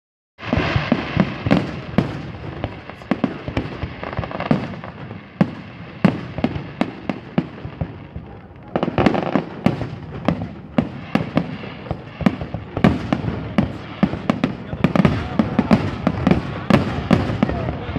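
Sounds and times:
fireworks bursting with sharp bangs: 0.4 - 17.9.

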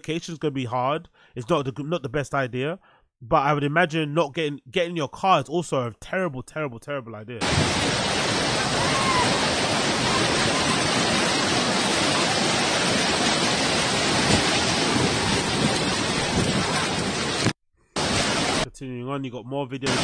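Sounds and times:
floodwater rushing: 7.4 - 18.6.

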